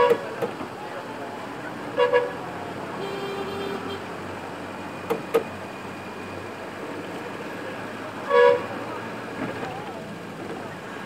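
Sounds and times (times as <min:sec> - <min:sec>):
vehicle horns: 0:00.0 - 0:00.5, 0:01.9 - 0:04.1, 0:08.2 - 0:08.8
street traffic: 0:00.0 - 0:11.0.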